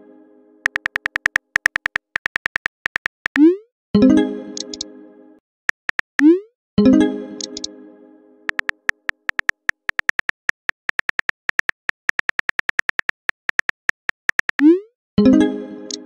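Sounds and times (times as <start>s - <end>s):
phone keyboard clicks: 0.6s - 3.4s, 4.6s - 4.8s, 5.7s - 6.3s, 7.4s - 7.7s, 8.5s - 14.6s.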